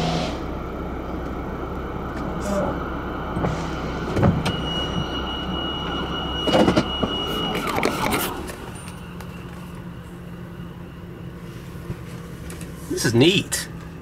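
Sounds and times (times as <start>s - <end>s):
car running: 0.0s - 14.0s
clunks: 2.0s - 11.0s
thin high tone: 2.4s - 12.4s.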